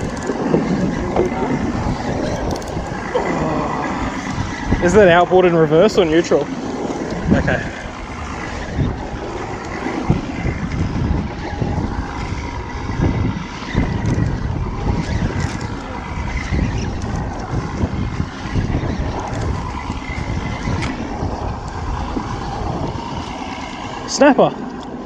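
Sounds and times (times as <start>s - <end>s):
outboard motor idling: 0.0s - 14.8s
wind buffeting microphone: 0.0s - 25.0s.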